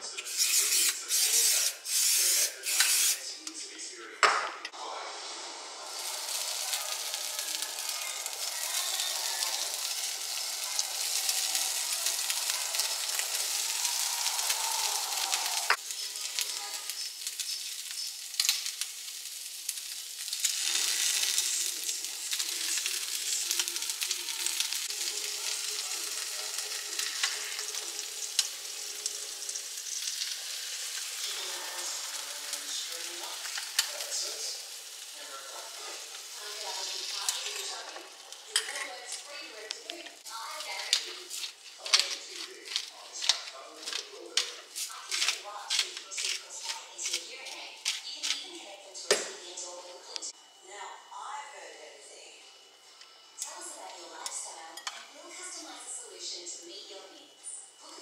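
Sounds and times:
food sizzling: 0:00.0 - 0:03.3, 0:04.7 - 0:50.6, 0:53.0 - 0:58.0.

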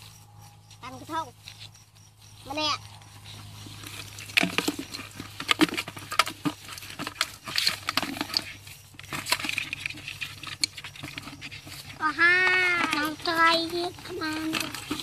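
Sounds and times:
bamboo trap rattling and knocking: 0:03.5 - 0:15.0
fish flopping in bucket: 0:03.7 - 0:12.0.

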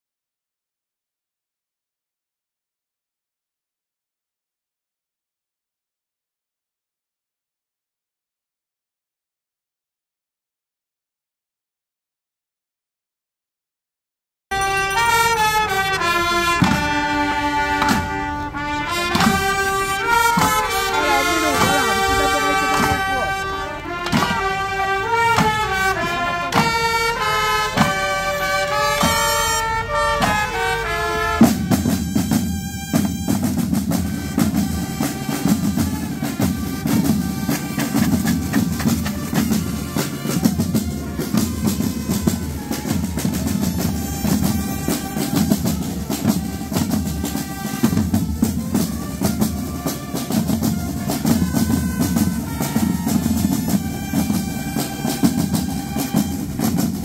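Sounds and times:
band playing a march: 0:14.5 - 0:57.0
rapid drumming: 0:14.9 - 0:29.6, 0:30.2 - 0:57.0.

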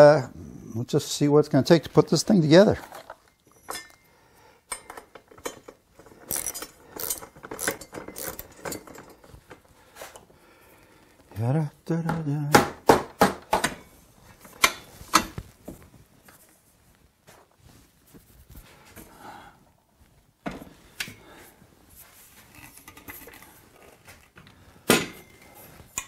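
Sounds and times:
steel tubes clanking together: 0:04.7 - 0:09.3.

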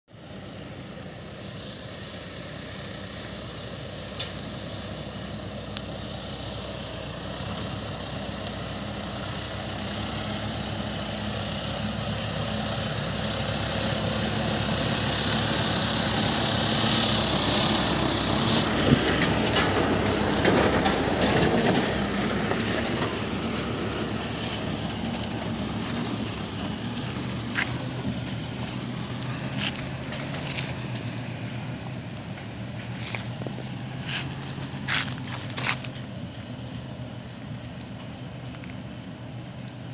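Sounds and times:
pickup truck engine passing: 0:00.2 - 0:39.9
sharp knocks and crunching rattle: 0:18.5 - 0:31.3, 0:32.3 - 0:36.6.

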